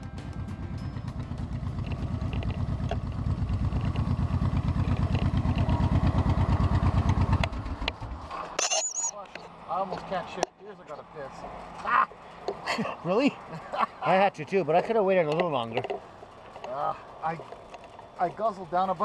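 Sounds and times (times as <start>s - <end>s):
motorcycle engine running slowly: 0.0s - 8.3s, 15.3s - 19.0s.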